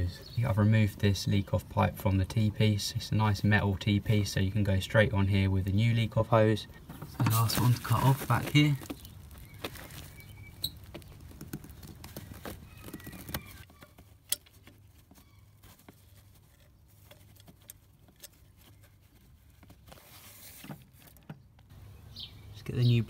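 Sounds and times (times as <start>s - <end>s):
faint clicks and scrapes of tools: 10.8s - 21.7s.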